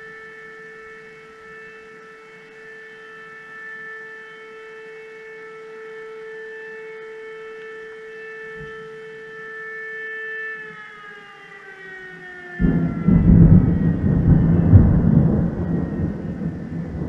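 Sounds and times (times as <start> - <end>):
alarm siren wailing: 0.0 - 17.0
thunder clap rumbling: 12.6 - 17.0.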